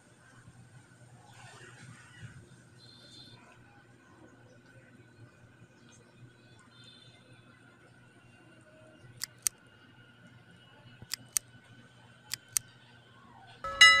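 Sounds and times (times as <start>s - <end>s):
mouse double clicks: 9.2s - 9.5s, 11.1s - 11.4s, 12.3s - 12.6s
notification bell ding: 13.7s - 14.0s.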